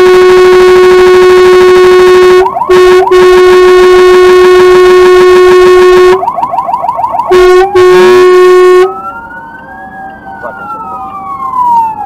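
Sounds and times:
fire engine air horn blasts: 0:00.0 - 0:06.2, 0:07.3 - 0:09.0
electronic siren yelping: 0:00.0 - 0:12.0.

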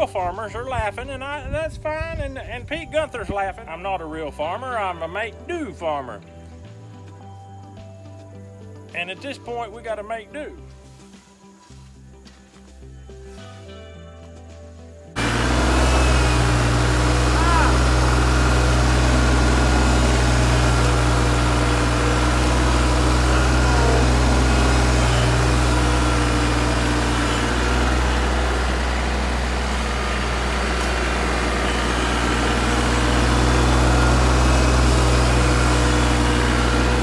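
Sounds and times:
tractor diesel engine running: 0:00.0 - 0:04.5, 0:15.1 - 0:37.0.

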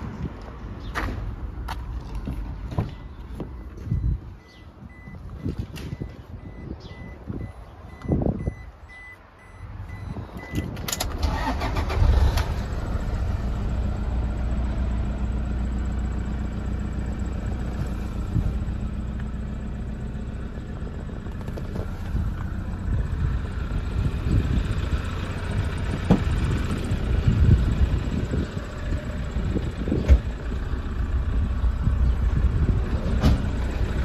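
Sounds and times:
diesel engine cranking and idling: 0:00.0 - 0:34.0
dashboard warning chime beeping: 0:02.9 - 0:10.8.

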